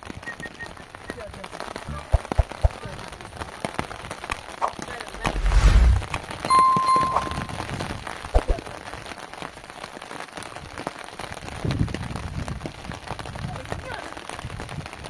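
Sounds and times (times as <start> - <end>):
rain on mud and puddles: 0.0 - 15.0
brief high tone: 6.5 - 7.6.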